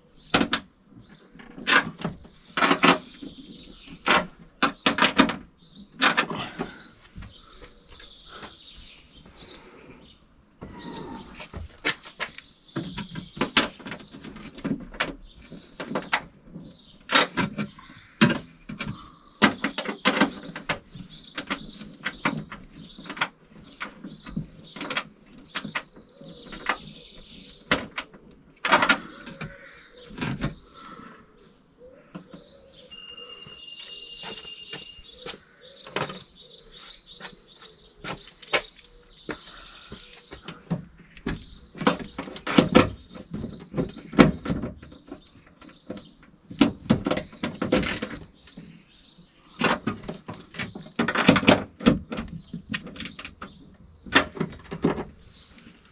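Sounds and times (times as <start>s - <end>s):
small birds chirping: 0.0s - 55.9s
whistle-like tone: 32.9s - 35.0s.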